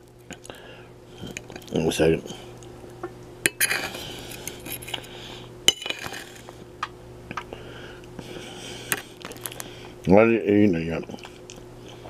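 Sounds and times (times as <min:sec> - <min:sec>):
metal fork clinking on a plate: 0:05.7 - 0:06.3.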